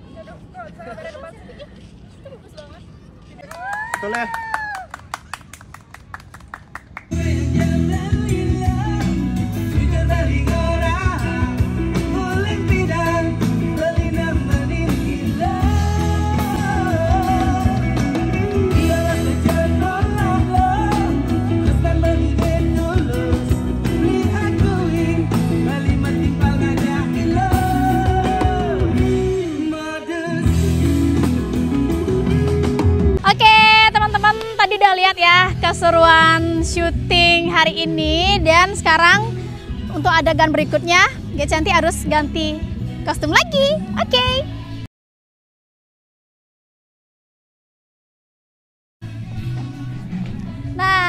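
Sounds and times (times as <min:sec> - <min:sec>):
person singing: 0:07.1 - 0:33.2
rock band playing: 0:07.2 - 0:29.6, 0:30.3 - 0:33.3.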